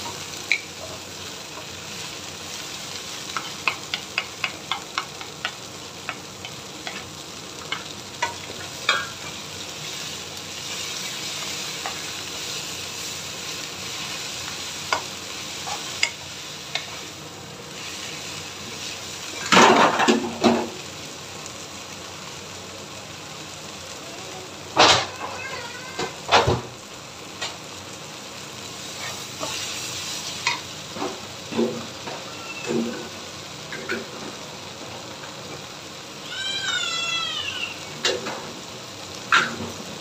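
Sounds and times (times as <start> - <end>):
food sizzling in a wok: 0.0 - 40.0
spatulas tapping and scraping pan: 3.2 - 9.4, 14.8 - 17.0.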